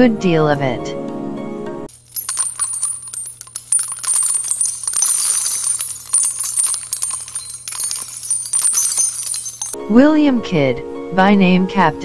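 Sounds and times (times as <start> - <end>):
rapid metallic clinking: 1.9 - 9.8.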